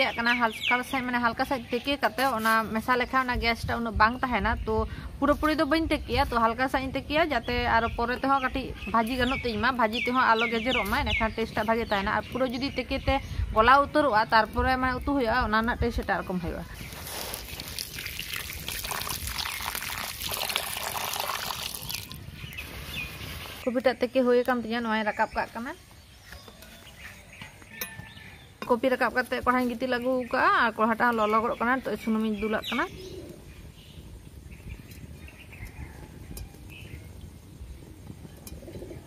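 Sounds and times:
water pouring into a metal pan: 17.4s - 22.2s.

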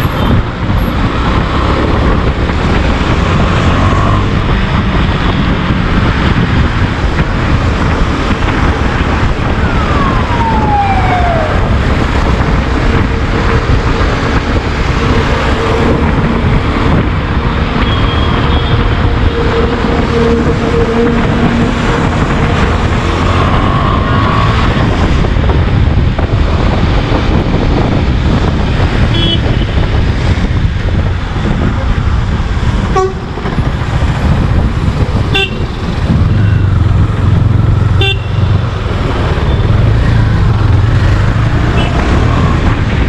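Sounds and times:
wind noise on microphone: 0.0s - 43.0s.

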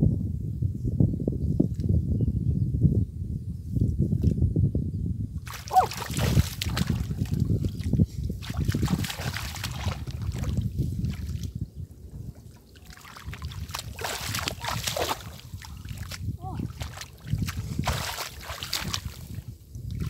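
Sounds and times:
water sloshing and splashing: 5.4s - 11.6s, 12.2s - 20.0s.

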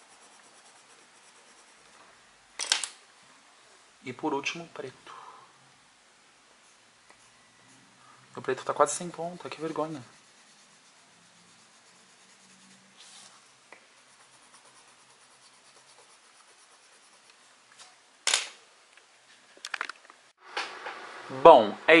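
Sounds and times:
pencil scratching on paper: 0.0s - 2.0s, 6.6s - 17.5s.

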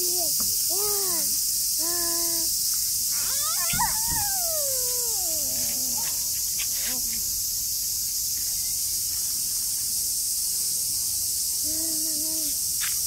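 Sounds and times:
young child's voice: 0.0s - 2.6s, 3.2s - 7.3s, 11.6s - 12.6s
cicadas droning: 0.0s - 13.0s.

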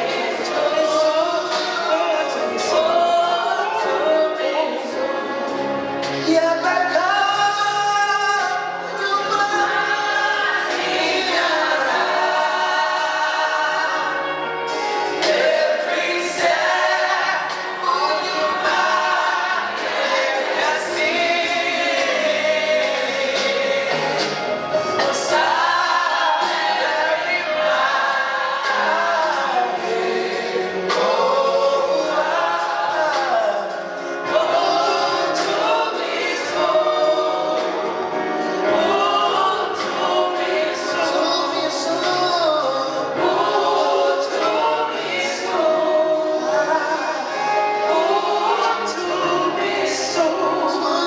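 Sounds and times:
gospel choir singing: 0.0s - 51.0s.

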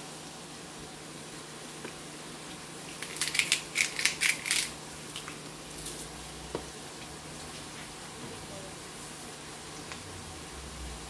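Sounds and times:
spice container shaking strokes: 2.9s - 4.7s.

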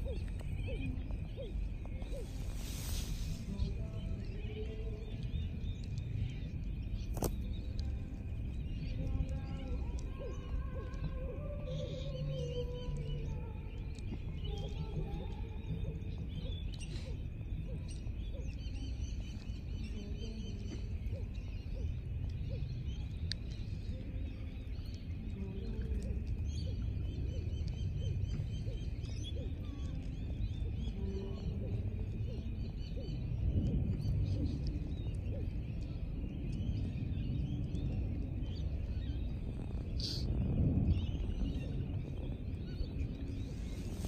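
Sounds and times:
birds chirping: 0.0s - 44.0s
wind rumble on microphone: 0.0s - 44.0s.

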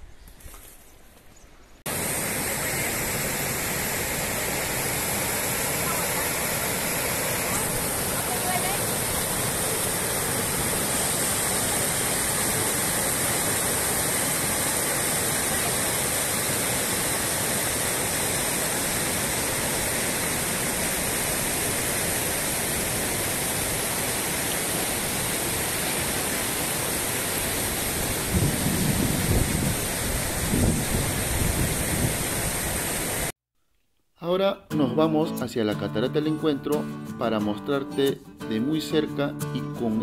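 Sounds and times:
river rushing over stones: 1.9s - 33.3s.

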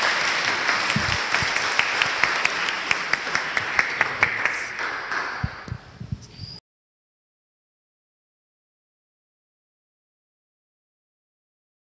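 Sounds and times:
audience applause: 0.0s - 5.5s.

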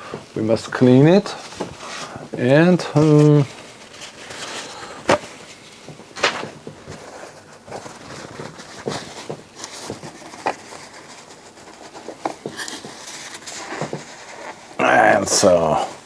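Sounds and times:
paper towel rubbing on metal: 7.0s - 15.9s.

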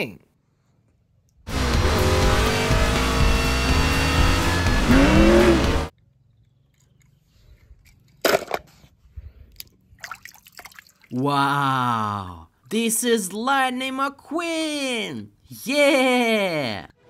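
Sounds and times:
race car engines: 1.5s - 5.9s
water splashes and drips: 9.5s - 11.2s.

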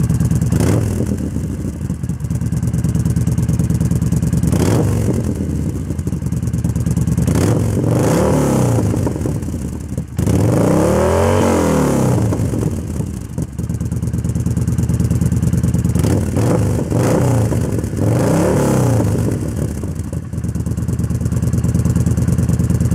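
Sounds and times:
motorcycle engine idling and revving: 0.0s - 22.9s.

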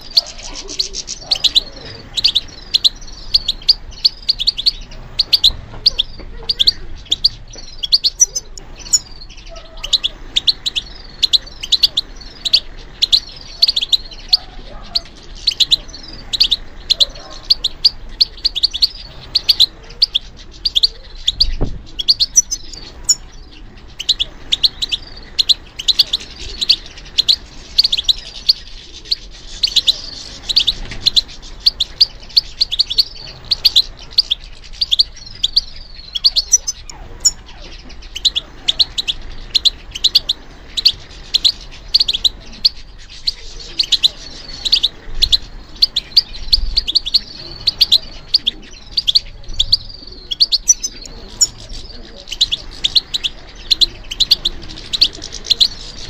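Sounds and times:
goldfinch singing: 0.0s - 56.0s
faint low thump: 21.4s - 21.9s.

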